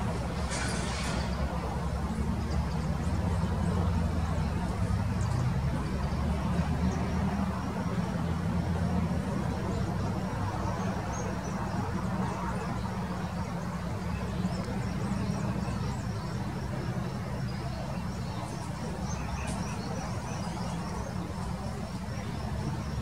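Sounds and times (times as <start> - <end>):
low mechanical drone: 0.0 - 10.0.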